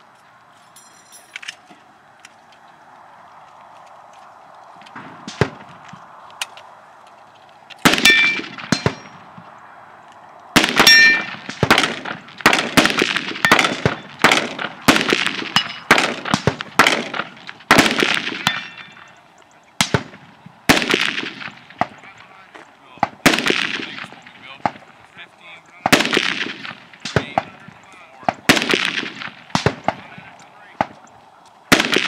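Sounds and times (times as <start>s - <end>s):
metallic ring of steel target: 0.7s - 1.4s, 8.0s - 9.2s, 10.8s - 11.5s, 15.5s - 16.1s, 18.4s - 19.2s
rifle shots: 4.9s - 5.8s, 7.8s - 9.3s, 10.6s - 19.2s, 19.8s - 22.4s, 23.0s - 25.0s, 25.8s - 31.1s, 31.7s - 32.0s.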